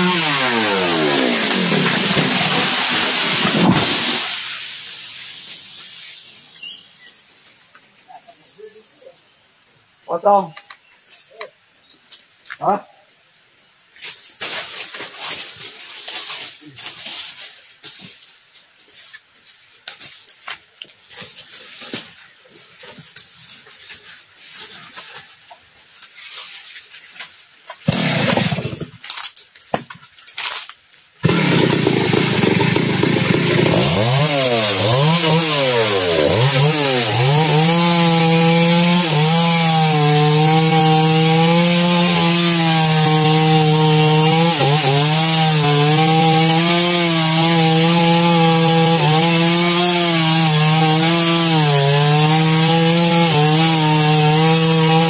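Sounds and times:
chainsaw revving and cutting log: 0.0s - 4.6s, 27.8s - 29.0s, 31.2s - 55.0s.

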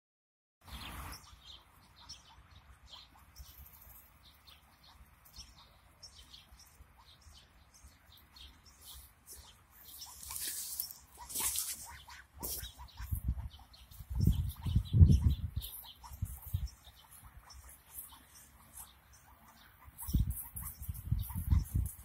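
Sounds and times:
ducks rustling in grass: 2.7s - 22.0s
wind rumble on microphone: 12.5s - 17.5s, 20.0s - 22.0s.

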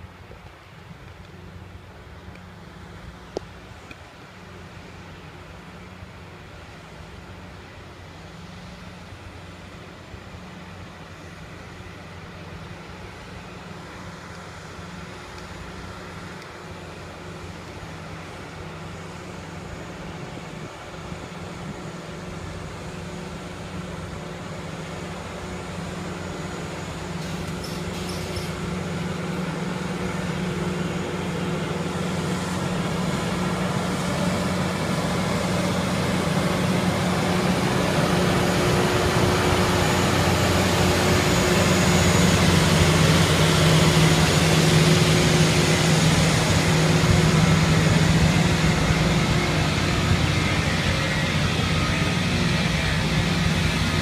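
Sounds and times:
diesel engines humming: 0.0s - 54.0s
grinding stones on rail: 27.1s - 31.4s.

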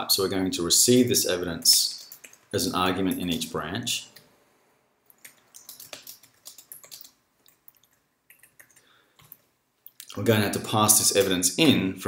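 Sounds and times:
typing on computer keyboard: 1.9s - 2.5s, 5.1s - 9.4s.

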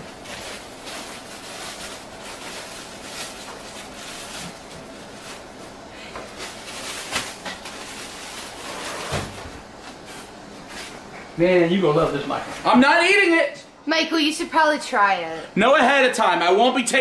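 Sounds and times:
hands rustling making a sandwich: 0.0s - 8.8s, 9.7s - 11.4s.

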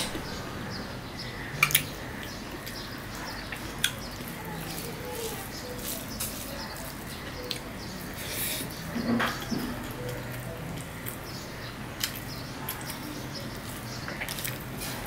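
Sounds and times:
fingers mixing rice on steel plate: 3.6s - 7.6s
wet chewing clicks and smacks: 12.0s - 15.0s.

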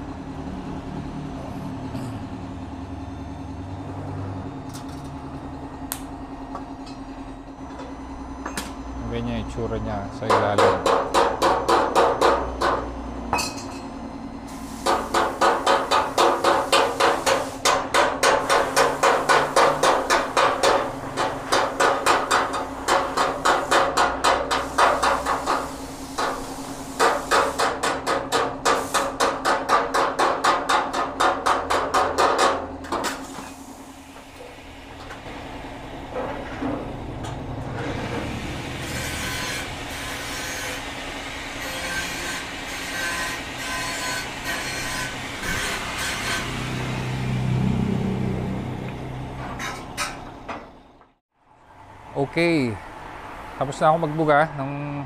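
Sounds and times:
steady low hum: 0.0s - 27.0s
hammer striking sheet metal: 10.2s - 13.6s, 14.8s - 26.4s, 27.0s - 33.1s.

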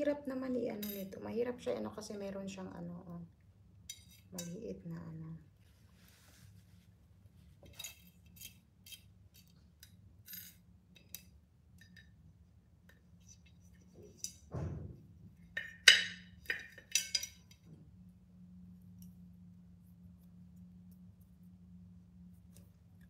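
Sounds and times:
soft thump: 14.5s - 15.1s.

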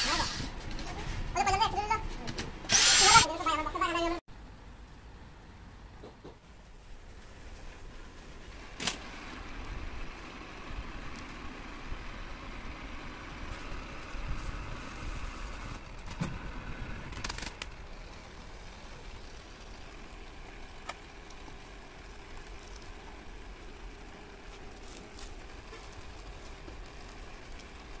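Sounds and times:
boring machine running: 2.7s - 3.3s.

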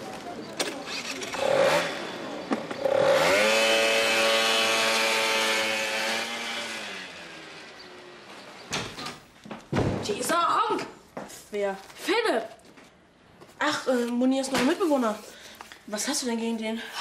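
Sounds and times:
moped engine pulling away: 0.7s - 8.6s.

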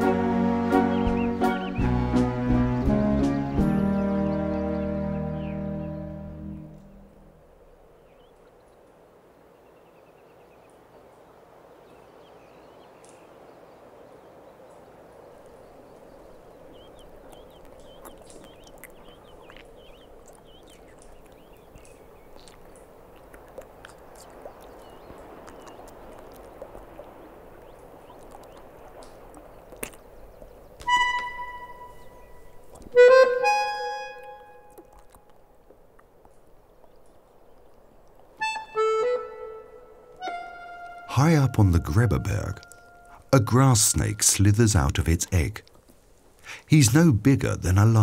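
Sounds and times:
scattered ticks: 17.0s - 31.4s.

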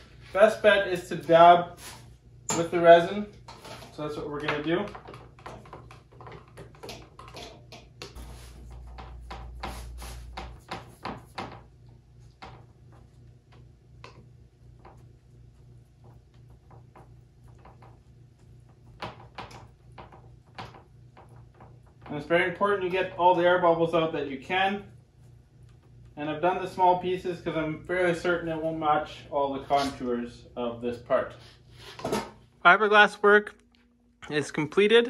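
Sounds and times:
brush tapping on fiberglass: 4.4s - 22.1s.

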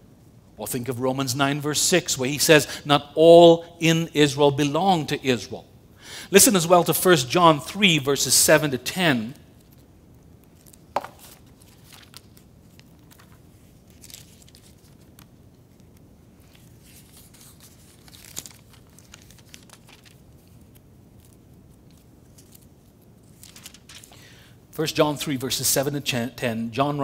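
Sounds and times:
pages turning: 10.4s - 24.2s.

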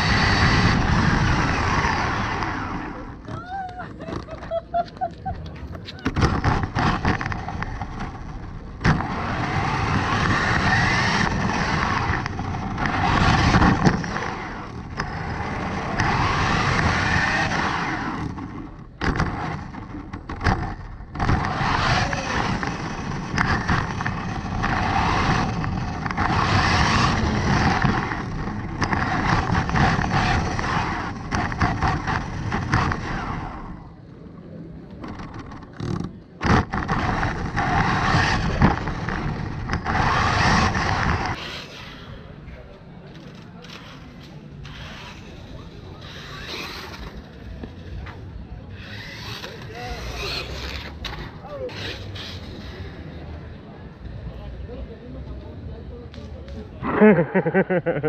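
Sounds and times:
tyre noise on pavement: 0.0s - 58.0s
toy car motor whining: 43.6s - 47.4s, 48.8s - 52.7s.

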